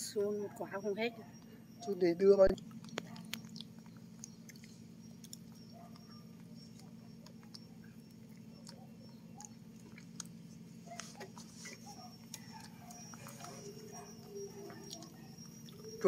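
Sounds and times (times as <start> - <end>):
low steady hum: 0.0 - 16.0
monkey chewing banana: 1.2 - 16.0.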